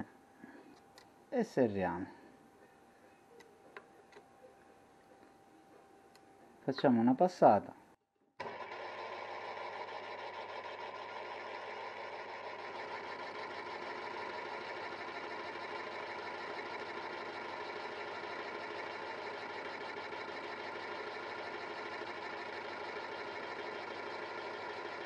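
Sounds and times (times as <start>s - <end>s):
lathe running: 8.4s - 25.0s.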